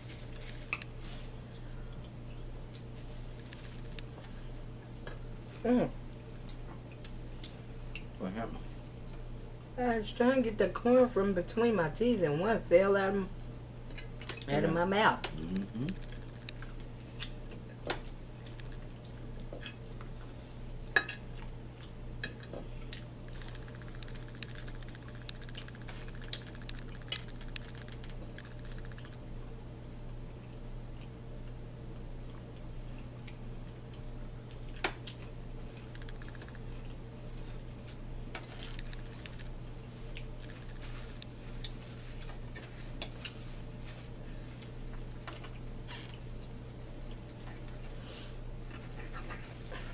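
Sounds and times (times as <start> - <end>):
steady low hum: 0.0 - 49.9
chewing: 15.3 - 31.2, 32.2 - 48.0.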